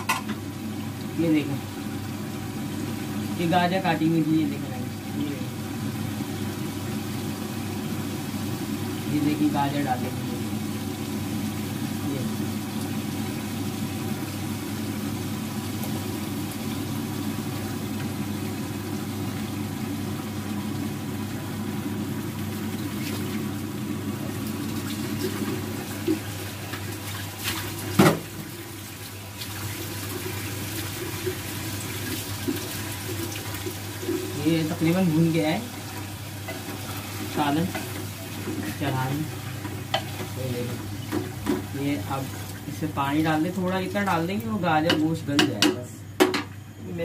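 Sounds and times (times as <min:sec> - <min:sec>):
pot cooking over gas burner: 0:00.0 - 0:47.0
small knock: 0:44.9 - 0:46.5.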